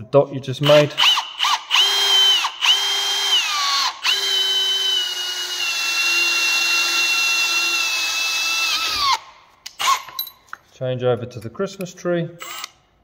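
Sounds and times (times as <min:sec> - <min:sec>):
electric drill drilling into steel: 0:00.7 - 0:10.2, 0:12.4 - 0:12.8.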